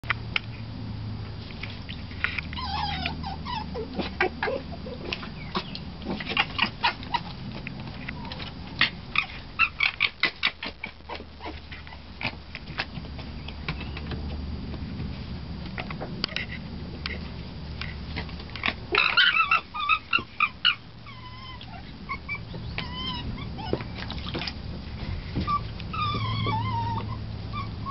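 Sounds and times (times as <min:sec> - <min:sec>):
fox cub squealing: 0:02.5 - 0:07.4, 0:08.0 - 0:12.1, 0:18.6 - 0:24.3, 0:25.4 - 0:27.9.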